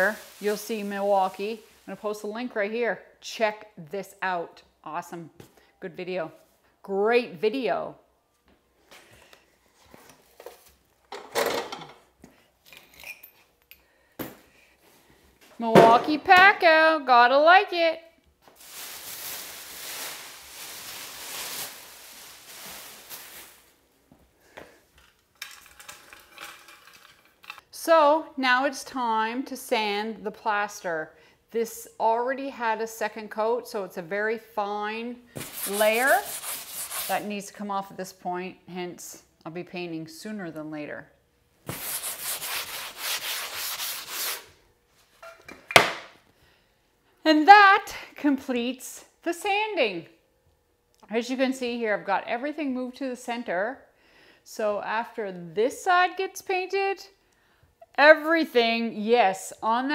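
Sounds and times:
plastic sheeting rustling: 0.0 - 2.3, 18.4 - 23.8
sanding plaster: 35.4 - 37.3, 41.7 - 44.5.

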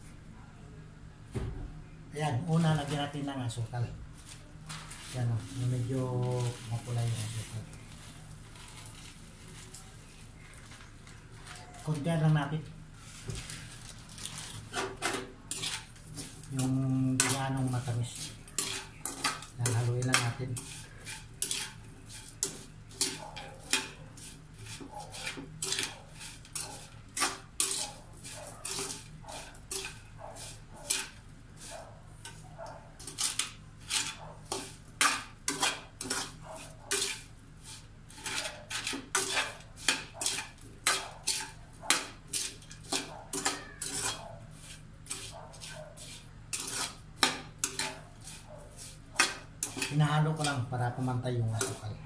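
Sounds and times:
metal utensil scraping a wok: 11.5 - 32.4, 33.0 - 52.0.

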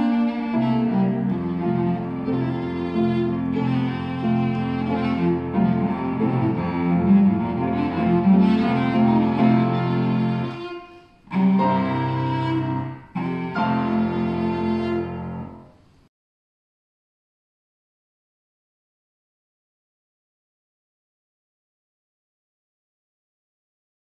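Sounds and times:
bowed cello melody: 0.0 - 15.8.

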